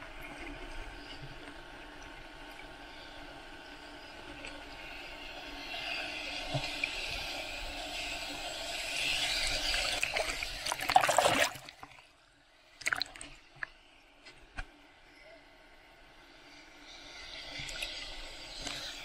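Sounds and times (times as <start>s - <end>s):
water splashes and drips: 9.8s - 12.0s, 12.8s - 13.8s.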